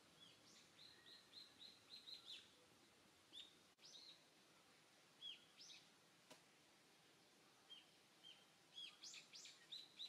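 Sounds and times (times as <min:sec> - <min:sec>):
small bird chirping: 0:00.2 - 0:02.6, 0:03.3 - 0:04.3, 0:05.2 - 0:05.9, 0:07.7 - 0:10.0.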